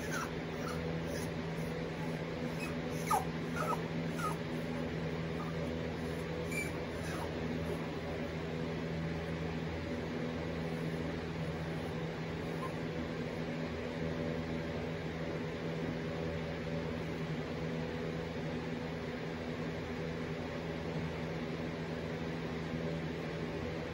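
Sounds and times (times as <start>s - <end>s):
puppy whimpering: 0.0s - 8.2s, 10.7s - 13.3s
steady low hum: 0.0s - 23.9s.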